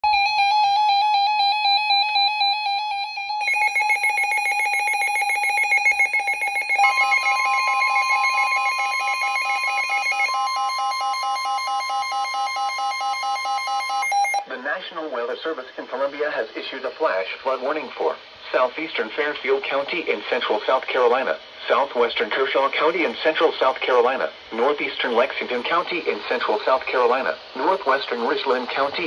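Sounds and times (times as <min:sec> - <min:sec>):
rapid alarm beeping: 0:00.0 - 0:14.4
steady alarm tone: 0:00.0 - 0:14.4.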